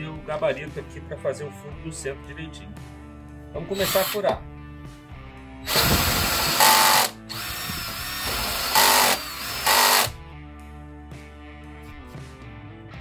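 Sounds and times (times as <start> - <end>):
cordless drill boring into wood: 3.8 - 4.4, 5.6 - 10.2.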